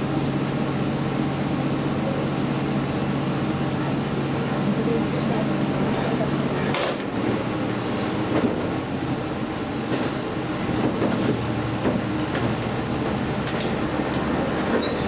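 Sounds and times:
railcar rumbling along track: 0.0s - 15.0s
wheels clunking over rail joints: 5.2s - 8.9s, 9.8s - 15.0s.

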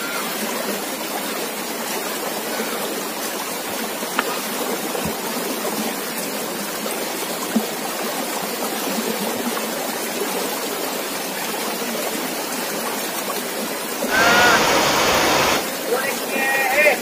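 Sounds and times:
river flowing over rapids: 14.1s - 15.6s.

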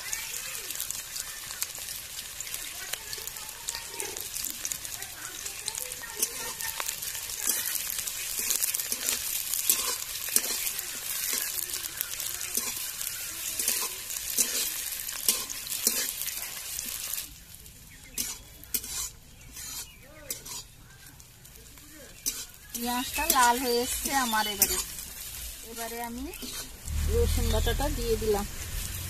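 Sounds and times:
onions sizzling in oil: 0.0s - 29.0s
metal spatula scraping pan: 6.0s - 17.2s, 18.1s - 20.8s, 22.1s - 29.0s.

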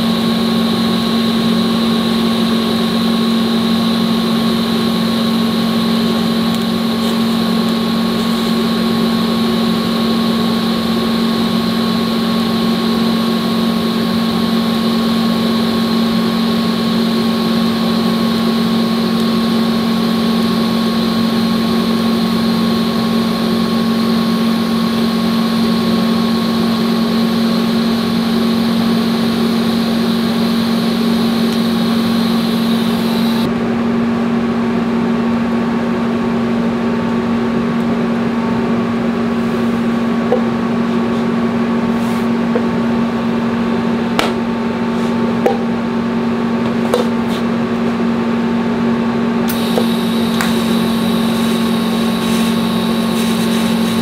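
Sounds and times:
welding arc hiss: 0.0s - 33.5s, 49.5s - 54.0s
welder low hum: 0.0s - 33.6s, 36.0s - 54.0s.

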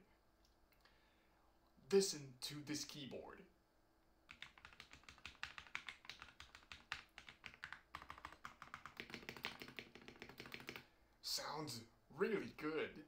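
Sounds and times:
fast mechanical keyboard typing: 4.3s - 10.8s.

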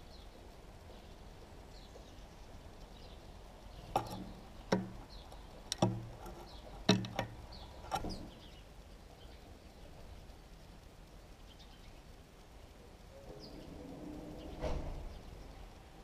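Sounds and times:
sparrows chirping: 0.0s - 10.4s, 11.2s - 15.9s
bird beak tapping on dish: 5.7s - 7.4s.

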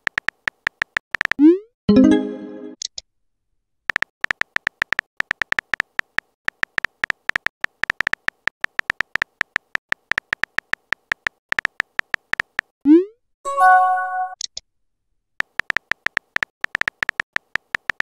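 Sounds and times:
keyboard typing clicks: 15.4s - 18.0s.

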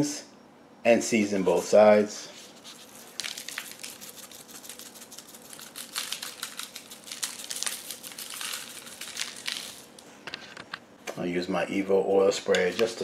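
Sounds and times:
crumpled paper crinkling: 2.4s - 10.5s.

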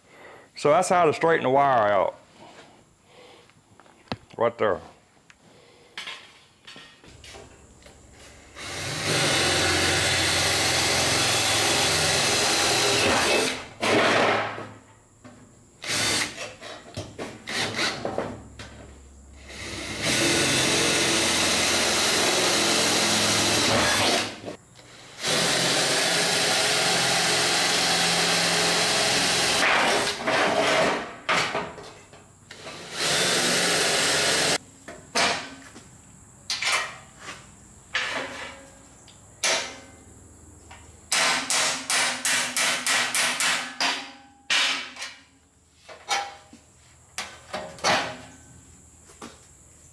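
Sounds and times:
cordless drill drilling metal: 8.6s - 13.6s, 15.8s - 16.4s, 19.5s - 24.5s, 25.1s - 30.1s, 32.5s - 34.6s
knocks and clatter of metal: 41.3s - 45.2s.

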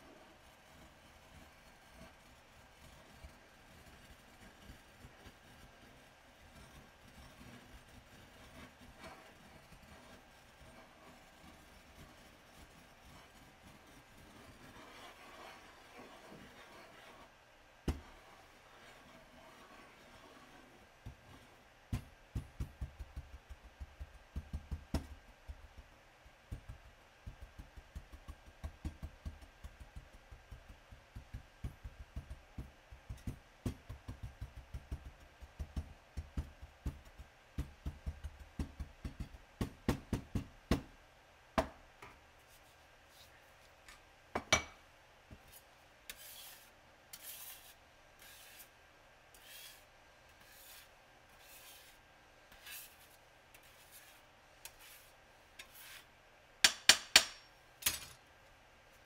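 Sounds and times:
palette knife scraping glass: 6.4s - 17.3s, 46.1s - 48.7s, 49.4s - 56.0s.

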